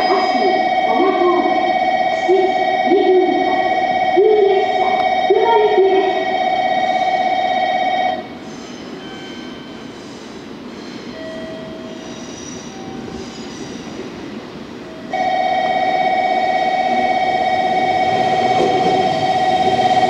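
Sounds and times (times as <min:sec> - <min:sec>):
faint train whines: 0:00.0 - 0:20.0
train rumbling in: 0:00.0 - 0:20.0
electronic bell trilling: 0:15.0 - 0:19.8.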